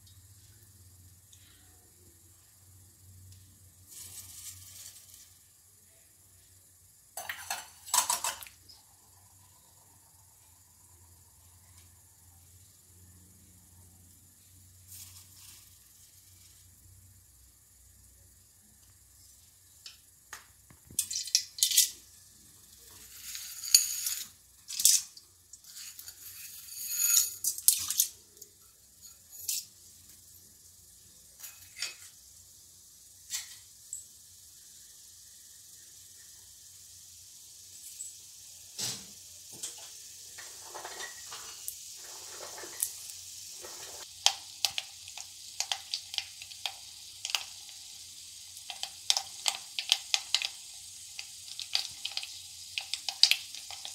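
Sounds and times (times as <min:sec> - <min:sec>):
frying sizzle: 0:03.0 - 0:05.8, 0:06.7 - 0:12.8, 0:14.2 - 0:53.9
hot oil crackling and popping: 0:03.2 - 0:05.7, 0:06.9 - 0:08.9, 0:19.7 - 0:30.3, 0:31.4 - 0:53.9
mustard seeds popping: 0:42.7 - 0:53.9.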